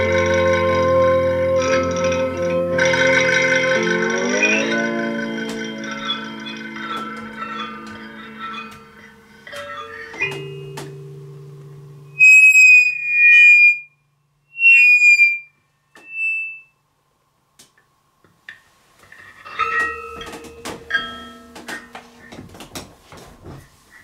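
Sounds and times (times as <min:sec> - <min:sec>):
thumb piano plucked notes: 0:00.0 - 0:12.3, 0:19.7 - 0:22.8.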